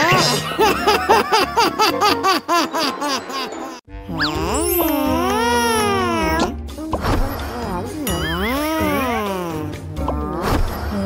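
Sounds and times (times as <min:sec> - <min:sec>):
cartoon music: 0:03.0 - 0:10.4
wavering cartoon tone: 0:07.7 - 0:10.4.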